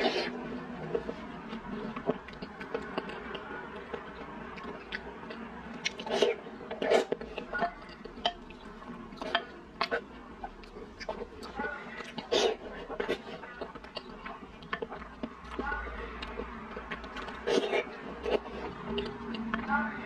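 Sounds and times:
wet chewing and mouth smacks: 0:00.9 - 0:19.7.

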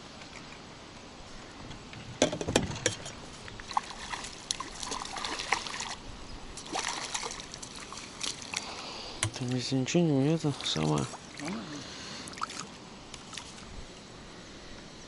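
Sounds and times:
fish thrashing and splashing: 0:03.6 - 0:06.0, 0:06.6 - 0:09.4.

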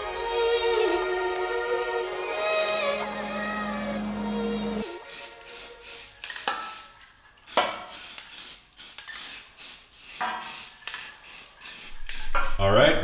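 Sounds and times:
aerosol can spraying: 0:02.5 - 0:02.8, 0:04.8 - 0:12.6.

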